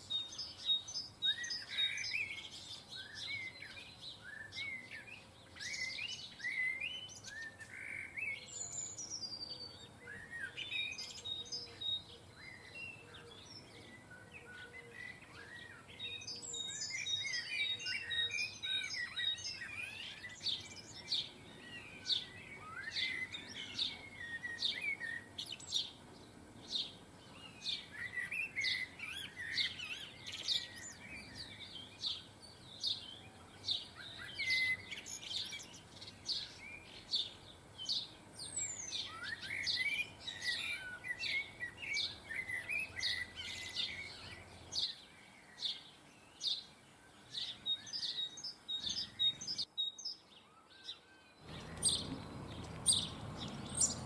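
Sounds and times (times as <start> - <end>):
songbirds chirping: 0.0 - 54.0
bird twittering warble: 47.4 - 54.0.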